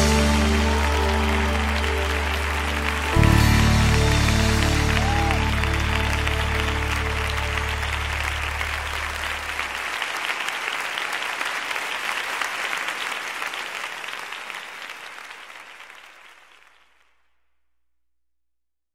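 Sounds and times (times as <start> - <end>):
song's low final note: 0.0 - 9.7
audience applause: 0.0 - 17.0.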